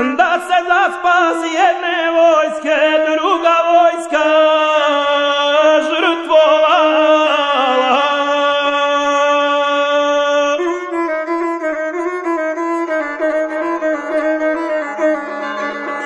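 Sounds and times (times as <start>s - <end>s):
man singing drawn-out note: 0.0s - 11.1s
bowed single-string instrument: 0.0s - 16.0s.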